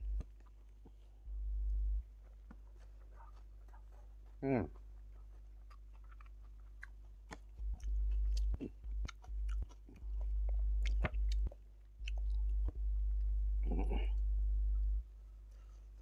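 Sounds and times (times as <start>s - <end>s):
person chewing food: 0.1s - 1.2s, 2.2s - 14.2s
deep low rumble: 1.2s - 2.2s, 7.5s - 15.4s.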